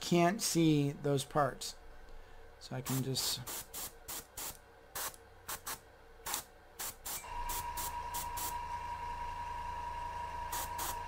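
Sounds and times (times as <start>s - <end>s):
airbrush spray bursts: 2.9s - 8.6s, 10.5s - 11.0s
hum with high whine: 4.5s - 11.0s.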